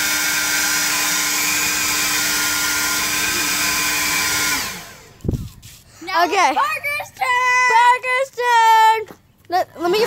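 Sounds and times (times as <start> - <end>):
leaf blower running: 0.0 - 6.2.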